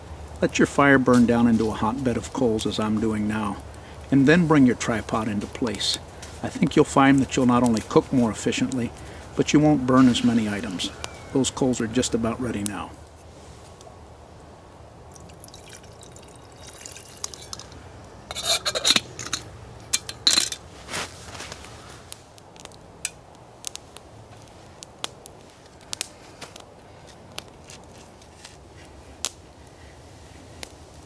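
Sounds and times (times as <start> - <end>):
campfire crackling and popping: 0.0 - 31.0
water pouring into metal kettle: 15.1 - 17.8.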